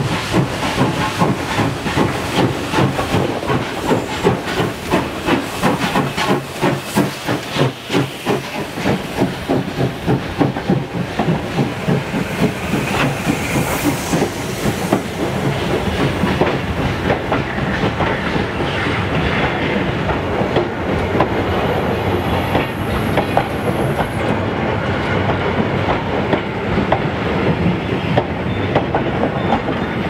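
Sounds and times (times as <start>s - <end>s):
train rumble: 0.0s - 30.0s
train wheels clattering over rail joints: 0.0s - 30.0s.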